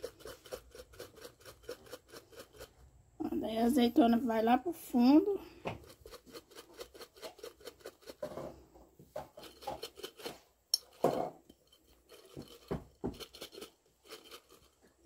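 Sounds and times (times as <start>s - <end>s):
chillies and olives rattling in glass jar: 9.2s - 15.0s.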